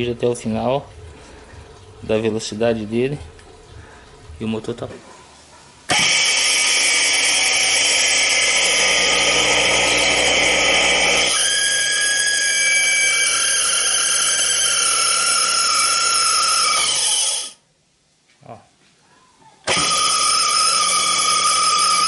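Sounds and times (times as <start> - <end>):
electric motor whining: 5.9 - 17.6, 19.7 - 22.0.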